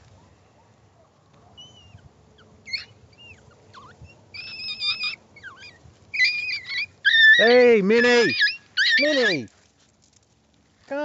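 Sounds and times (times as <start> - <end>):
puppies squealing and yelping: 1.5 - 9.5.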